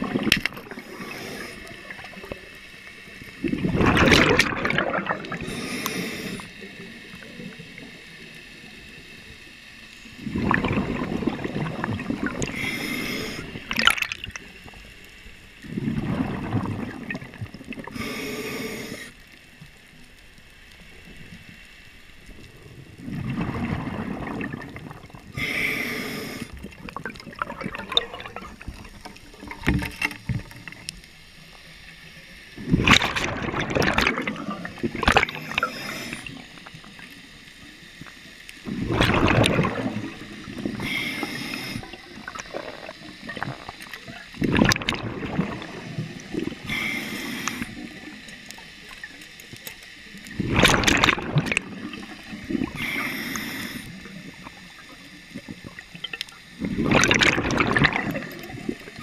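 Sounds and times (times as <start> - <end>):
exhaled bubbles rushing: 0.0 - 2.5, 3.3 - 5.6, 10.2 - 14.8, 15.6 - 18.0, 22.6 - 25.4, 26.5 - 30.9, 32.6 - 36.7, 38.6 - 40.9, 41.7 - 46.8, 50.3 - 52.8, 54.2 - 59.0
regulator inhale hiss: 0.6 - 3.4, 5.2 - 10.4, 12.2 - 15.9, 17.2 - 20.0, 25.1 - 26.8, 34.2 - 38.8, 39.8 - 44.0, 45.6 - 50.5, 51.4 - 55.5.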